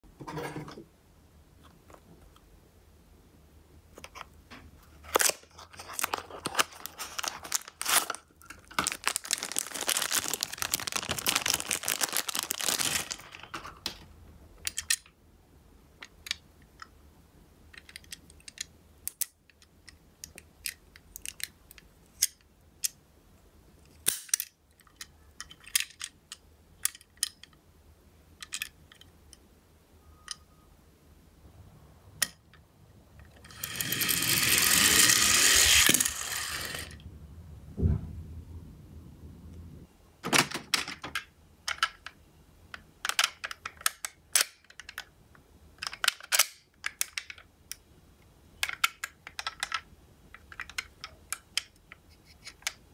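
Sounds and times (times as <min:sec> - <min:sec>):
toy car wheels rolling: 0:05.1 - 0:13.7, 0:33.4 - 0:37.0
cardboard box rustling: 0:05.2 - 0:13.3
small clicks of metal toy car: 0:17.8 - 0:23.0.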